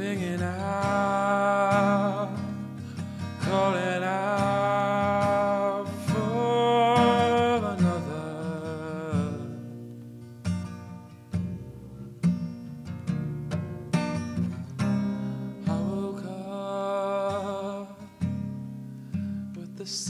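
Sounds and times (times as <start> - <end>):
man singing long held notes: 0.0 - 2.5, 3.4 - 9.6, 15.6 - 18.1
acoustic guitar: 0.0 - 20.0.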